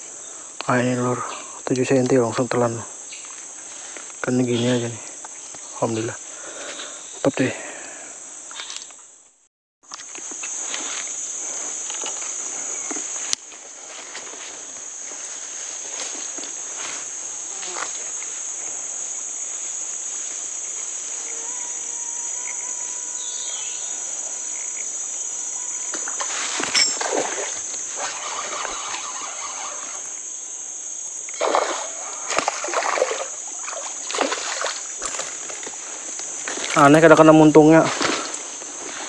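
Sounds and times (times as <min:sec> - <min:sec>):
high-pitched insect drone: 0:09.9 - 0:39.0
fish splashing in water: 0:31.3 - 0:35.7.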